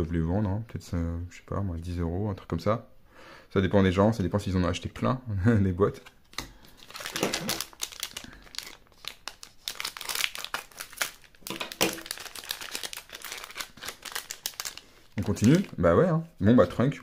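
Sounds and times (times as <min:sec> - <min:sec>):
plastic wrappers crinkling: 0:06.4 - 0:15.8.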